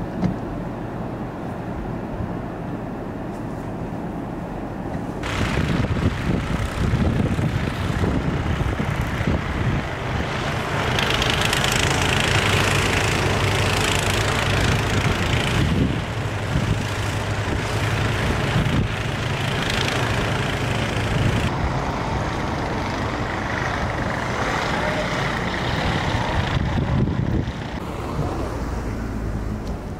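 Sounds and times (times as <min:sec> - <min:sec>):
snow blower engine running: 0:05.2 - 0:28.3.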